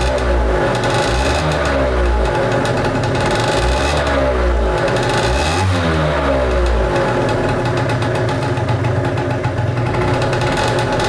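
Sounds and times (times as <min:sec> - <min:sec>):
scooter two-stroke engine idling: 0:00.0 - 0:11.0.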